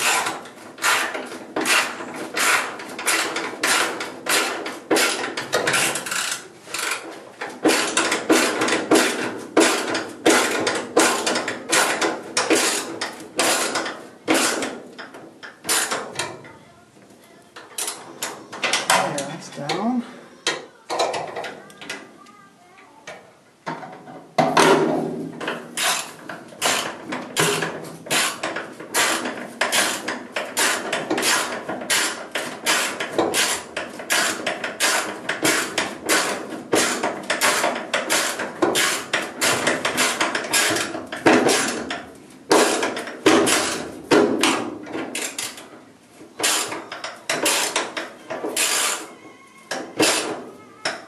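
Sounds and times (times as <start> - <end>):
hand ratchet clicking: 0.0 - 16.0, 25.8 - 43.8.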